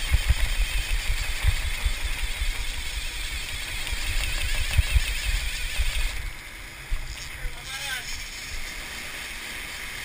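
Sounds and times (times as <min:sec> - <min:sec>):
wind buffeting microphone: 0:00.0 - 0:07.2
boat engines: 0:00.0 - 0:10.0
boat wake rushing: 0:00.0 - 0:10.0.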